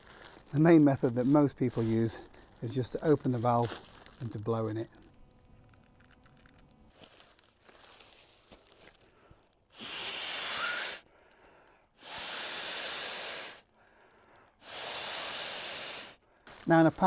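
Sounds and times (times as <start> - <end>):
breaths blown into valve: 9.7 - 11.1, 12.0 - 13.7, 14.6 - 16.2.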